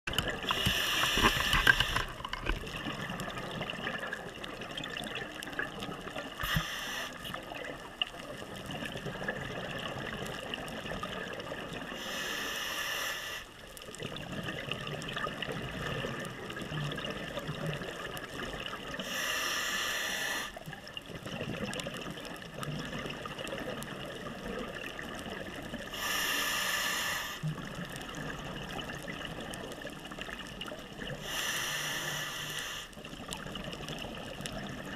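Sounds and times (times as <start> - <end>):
bubbling exhaled air underwater: 0.1 - 12.2, 13.9 - 19.4, 20.1 - 34.9
low crackling hiss: 0.1 - 34.9.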